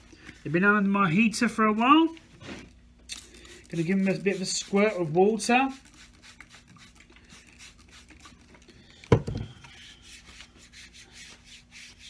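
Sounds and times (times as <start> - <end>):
hands rubbing wet sole: 3.6 - 8.3, 9.7 - 12.0
bottle thump on workbench: 9.1 - 9.5.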